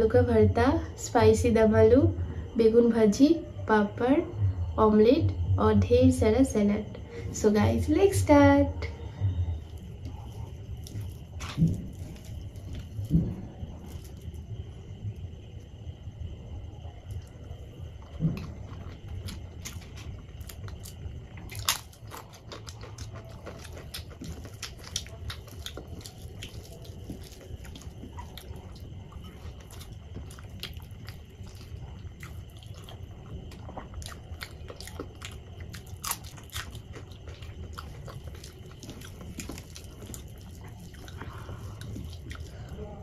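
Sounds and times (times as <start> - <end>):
close chewing and wet mouth sounds: 8.8 - 43.0.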